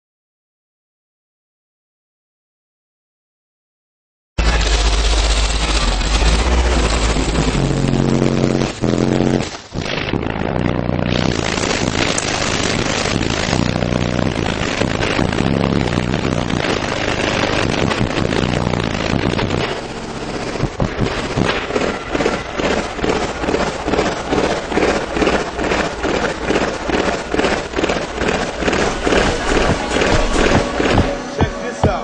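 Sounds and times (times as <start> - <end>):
heavy bass music from car subwoofers: 4.4 - 21.4, 29.0 - 32.0.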